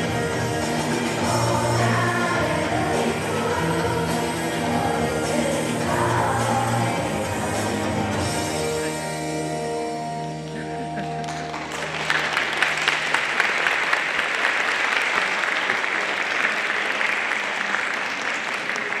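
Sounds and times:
audience applause: 10.5 - 19.0.

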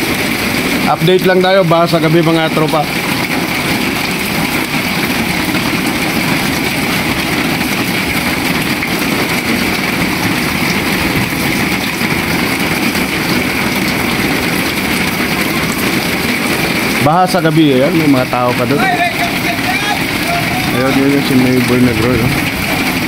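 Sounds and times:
rain falling on water: 0.0 - 23.0.

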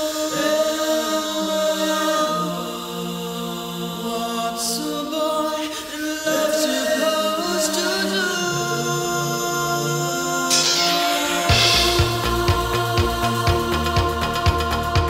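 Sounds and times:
choir-like singing: 0.0 - 15.0.

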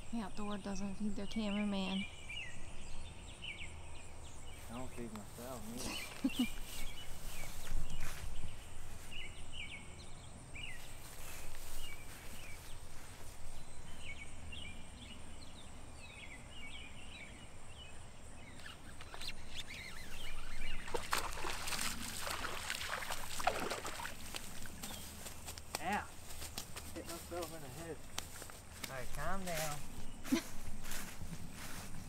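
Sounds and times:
small birds chirping: 0.0 - 32.0
fish splashing in water: 20.1 - 24.9.

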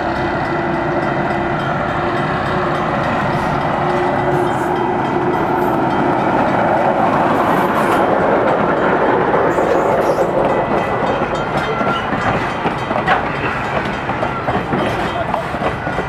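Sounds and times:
diesel locomotive passing: 0.0 - 16.0
train coaches rolling on rails: 0.0 - 16.0.

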